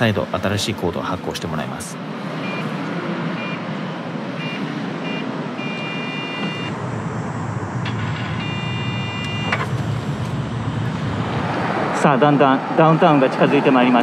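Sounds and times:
traffic noise: 0:00.0 - 0:14.0
docking station electronic beeps: 0:02.4 - 0:03.7, 0:04.4 - 0:06.8, 0:07.8 - 0:09.8.

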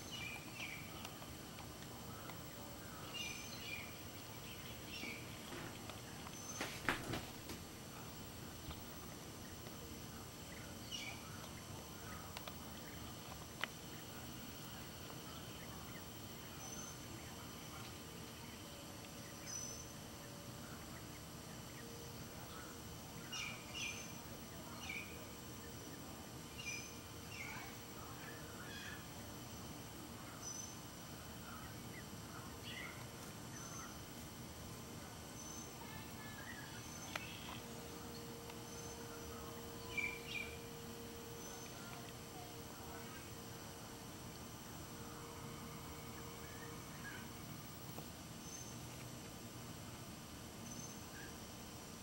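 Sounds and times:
steady outdoor hiss: 0:00.0 - 0:52.0
faint bird chirps: 0:02.0 - 0:06.8.

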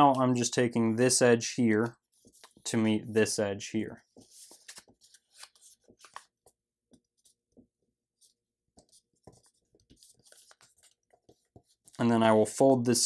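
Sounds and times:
paper rustling and creasing: 0:02.1 - 0:02.7, 0:04.0 - 0:12.0.

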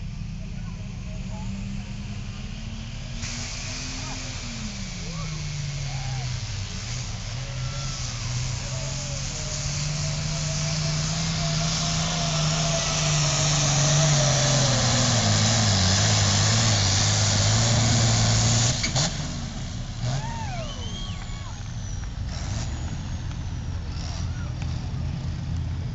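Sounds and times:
turbo and exhaust hiss: 0:00.0 - 0:25.8
diesel tractor engine straining: 0:00.0 - 0:25.9
rising and falling whistles: 0:20.2 - 0:22.0.

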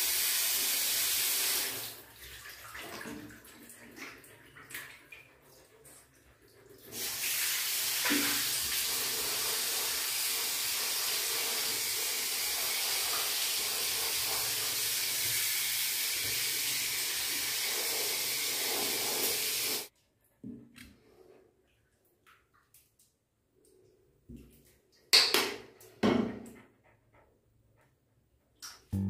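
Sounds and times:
shower head spraying water: 0:07.0 - 0:19.9.

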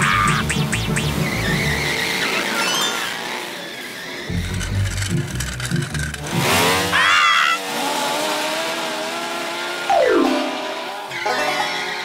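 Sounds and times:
cartoon toy car motor whine: 0:01.0 - 0:07.8.

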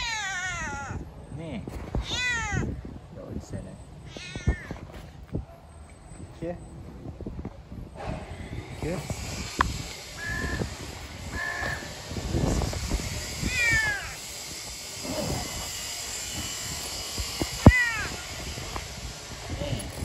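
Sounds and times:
cat meowing: 0:00.0 - 0:01.0, 0:02.0 - 0:02.8, 0:04.0 - 0:05.0, 0:13.5 - 0:14.2, 0:17.6 - 0:18.4.

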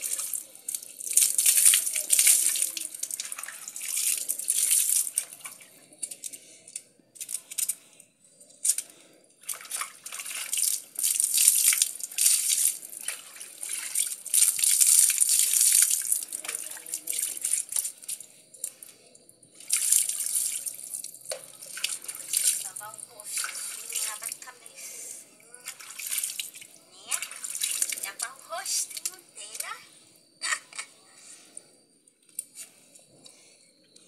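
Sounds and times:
water splashing on dog and ground: 0:00.0 - 0:05.6, 0:09.4 - 0:18.2, 0:19.6 - 0:24.6, 0:25.6 - 0:29.8
water scooped with plastic jug: 0:19.6 - 0:24.5, 0:25.6 - 0:29.2.

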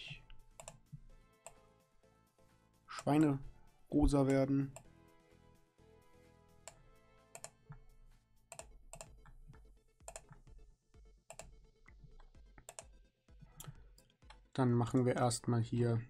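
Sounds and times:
faint background music: 0:00.0 - 0:16.0
keyboard and mouse clicks: 0:00.2 - 0:01.6, 0:06.6 - 0:07.9, 0:08.5 - 0:10.5, 0:11.3 - 0:15.1.

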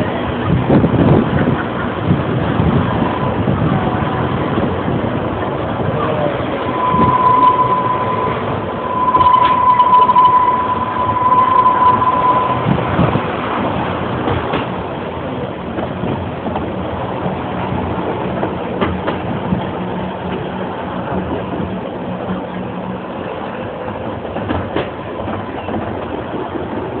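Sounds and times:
train carriage rumble and rattle: 0:00.0 - 0:27.0
loud steady high tone: 0:06.6 - 0:13.2.

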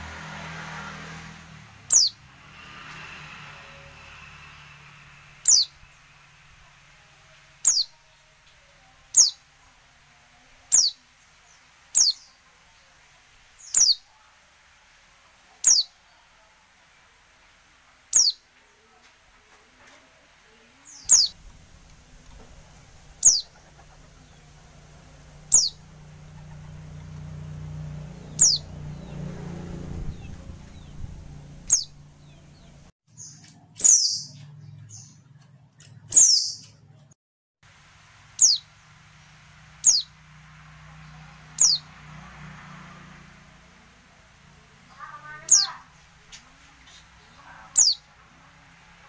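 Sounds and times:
bird calls sliding downward: 0:25.5 - 0:27.2, 0:28.3 - 0:29.3.

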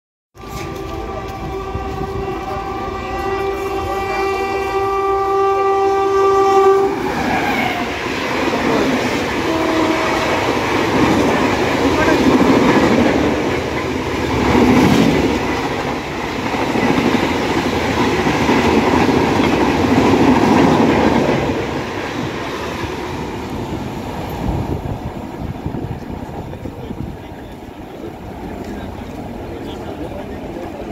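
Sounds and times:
locomotive horn blast: 0:00.4 - 0:08.1, 0:09.3 - 0:10.9
train rushing past: 0:00.4 - 0:30.9.

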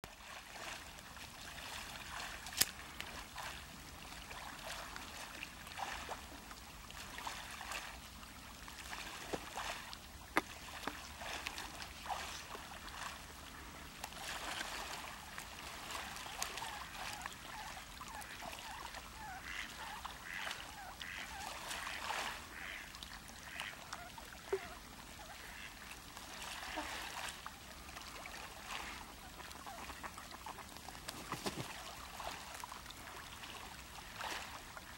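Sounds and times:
swans splashing in water: 0:00.0 - 0:34.9
swans honking softly: 0:09.1 - 0:34.9.

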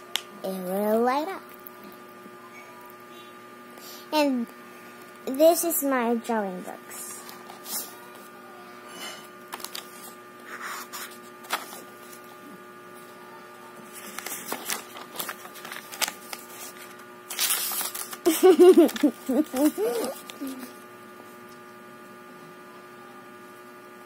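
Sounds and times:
steady electrical hum: 0:00.0 - 0:24.0
paper pages rustling and turning: 0:09.5 - 0:12.2, 0:13.9 - 0:20.7.

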